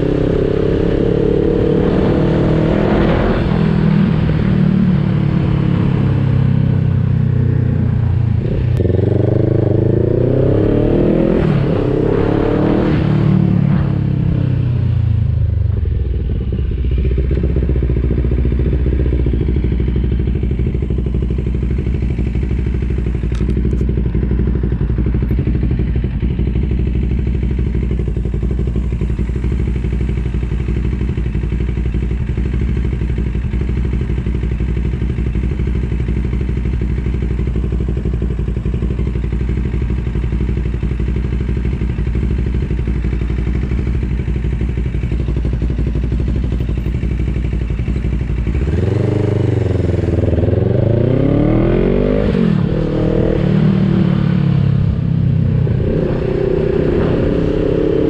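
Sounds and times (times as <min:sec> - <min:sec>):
motorcycle engine idling: 0:03.6 - 0:10.0, 0:14.4 - 0:50.8.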